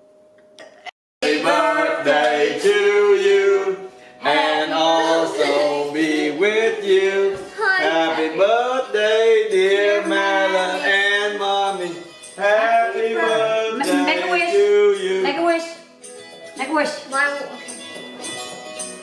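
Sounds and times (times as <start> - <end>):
song with sung vocals: 1.2 - 15.9.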